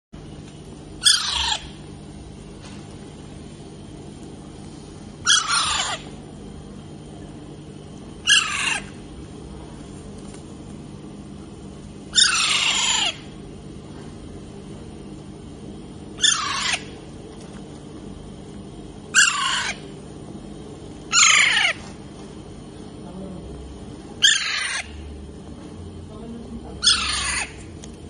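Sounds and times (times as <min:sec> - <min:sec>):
parrot screeching: 0:01.0 - 0:01.8, 0:05.2 - 0:06.1, 0:08.2 - 0:09.0, 0:12.1 - 0:13.3, 0:16.2 - 0:17.0, 0:19.1 - 0:19.8, 0:21.1 - 0:21.8, 0:24.2 - 0:25.0, 0:26.8 - 0:27.7.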